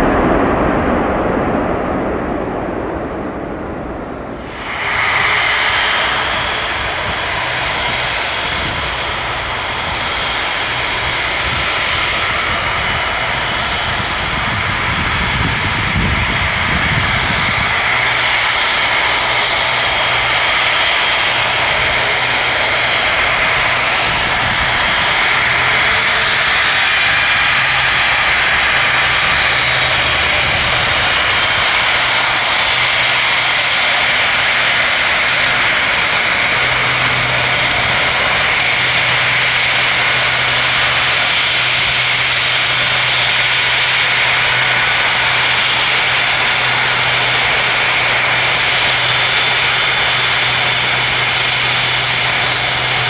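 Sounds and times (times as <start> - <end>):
high jet whine: 0.0 - 53.0
jet engines running: 0.0 - 53.0.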